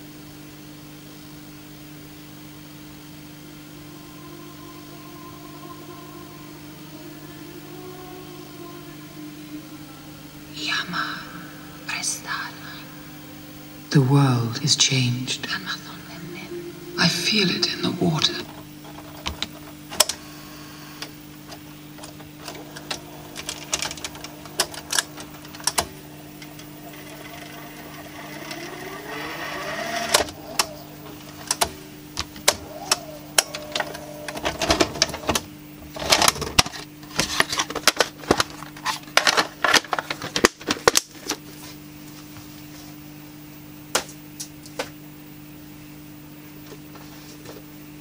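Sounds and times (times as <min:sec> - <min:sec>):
low machine hum: 0:00.0 - 0:48.0
reels spinning whine: 0:16.0 - 0:43.0
tape mechanism clicks: 0:22.0 - 0:30.7
rapid mechanical clattering: 0:22.0 - 0:31.7.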